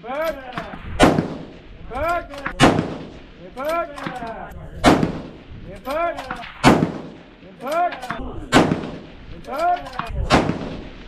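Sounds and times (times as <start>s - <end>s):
rifle shots: 0.9s - 3.3s, 4.0s - 5.5s, 6.2s - 7.3s, 8.5s - 9.2s, 9.8s - 11.0s.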